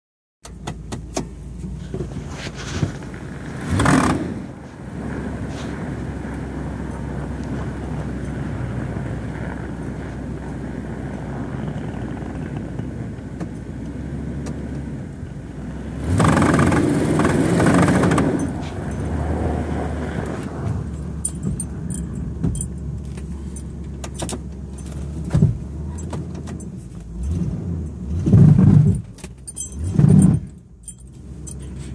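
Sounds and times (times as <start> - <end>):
vehicle engine drone: 0.4 - 31.9
loud rough grinding noise: 3.6 - 4.6, 16.0 - 20.4.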